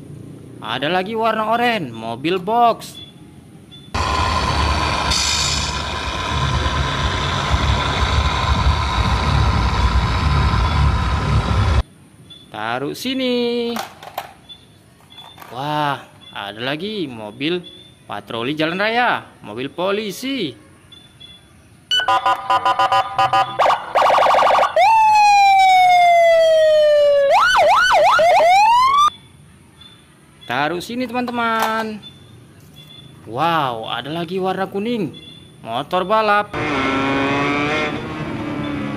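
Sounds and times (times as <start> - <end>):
model truck engine running: 4.0 - 11.8
police car electronic siren: 21.9 - 29.2.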